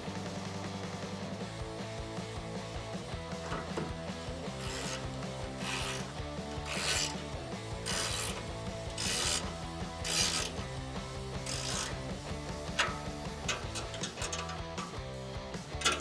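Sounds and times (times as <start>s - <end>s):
socket ratchet clicking: 4.6s - 7.2s, 7.8s - 10.7s, 11.3s - 15.0s.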